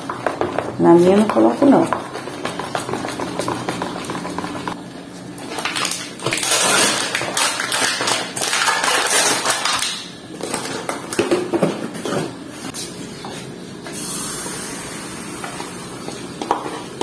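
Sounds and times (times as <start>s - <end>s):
plastic bag crinkling: 5.4s - 11.2s.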